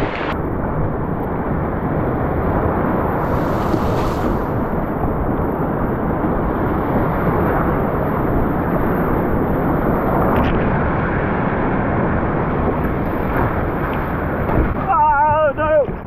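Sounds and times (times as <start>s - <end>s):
whitewater rushing: 3.0s - 5.2s.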